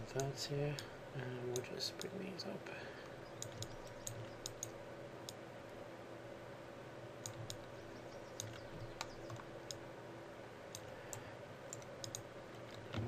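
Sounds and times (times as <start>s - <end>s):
steady low hum: 0.0s - 13.0s
computer mouse clicking: 3.3s - 5.4s, 7.2s - 9.8s, 10.7s - 13.0s.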